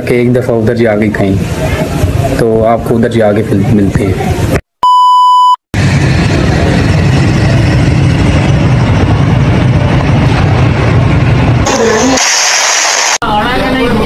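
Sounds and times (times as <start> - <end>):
loud steady beep: 4.8 - 5.6
vehicle engine running: 5.8 - 12.1.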